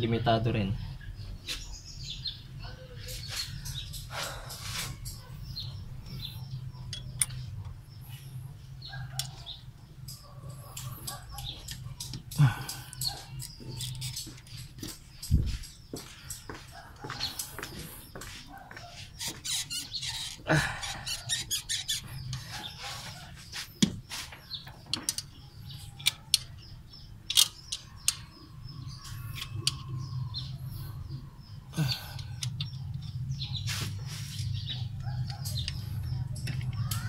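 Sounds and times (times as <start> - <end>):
pliers clicking and scraping metal: 10.0 - 16.5.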